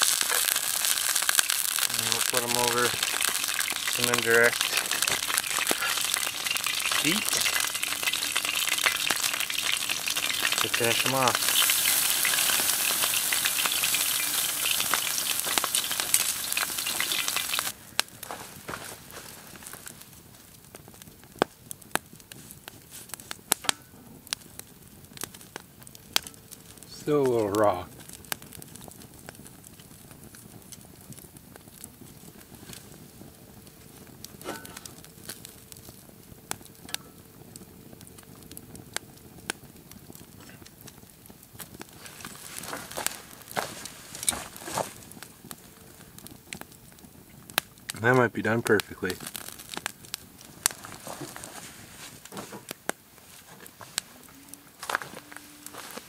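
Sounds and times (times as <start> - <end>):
steaks sizzling on grill: 0.0 - 18.0, 26.0 - 28.6, 32.0 - 52.8
pops and crackles: 0.0 - 56.0.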